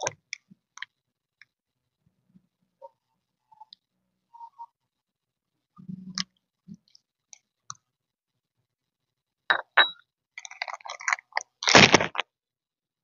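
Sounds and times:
crackling: 10.6 - 12.2.

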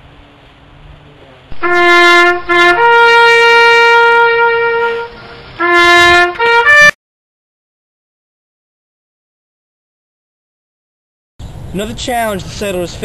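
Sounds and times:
trumpet call of held notes: 1.5 - 7.0.

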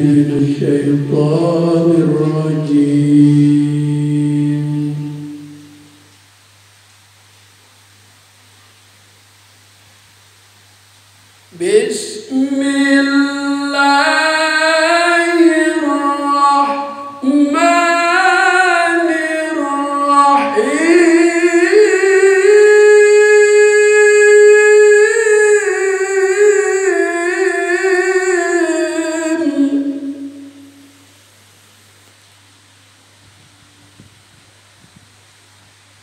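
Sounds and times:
man reciting melodically: 0.0 - 5.8, 11.5 - 30.7
faint steady hum: 0.0 - 36.0.

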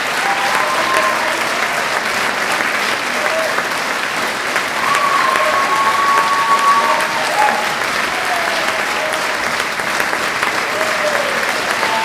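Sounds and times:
crowd calling out: 0.0 - 2.2, 4.7 - 9.4
audience applauding: 0.0 - 12.0.

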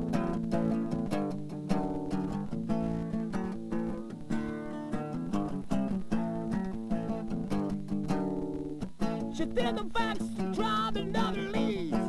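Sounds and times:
acoustic guitar chords: 0.0 - 12.0.

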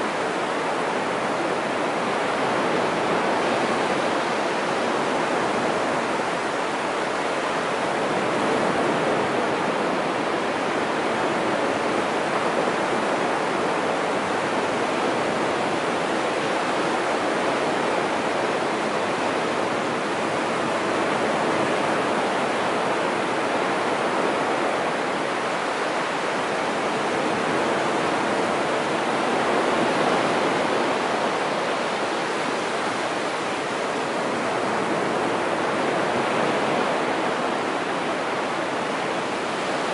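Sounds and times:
surf washing up sandy beach: 0.0 - 39.9.

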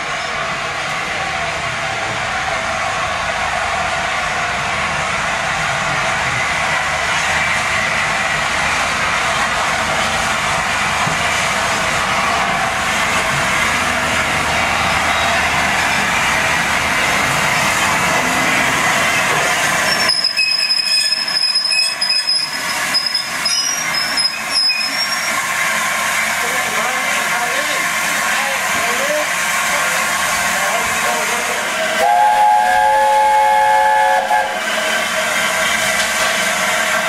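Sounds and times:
steam hissing: 4.6 - 37.0
train wheel squealing: 19.2 - 25.5.

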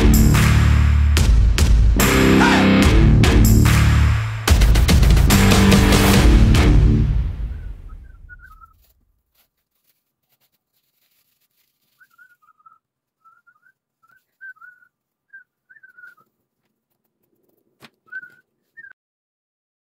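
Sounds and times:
background music: 0.0 - 8.1
high wavering whistled chirps: 7.6 - 8.8, 11.9 - 16.2.

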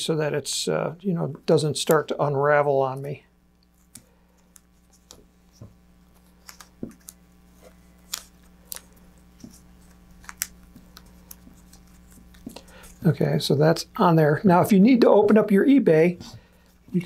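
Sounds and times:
tape and cord crinkling: 2.9 - 13.1.

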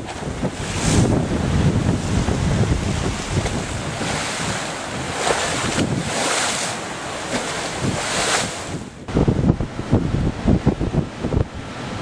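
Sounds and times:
waves breaking against a seawall: 0.0 - 9.0
wind buffeting microphone: 0.0 - 12.0.

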